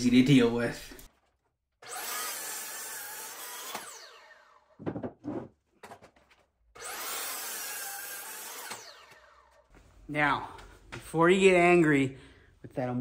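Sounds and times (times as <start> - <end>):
miter saw cutting wood: 1.8 - 4.8, 6.8 - 9.7
saw winding down whine: 1.8 - 4.8, 6.8 - 9.7
knocks: 4.8 - 6.0.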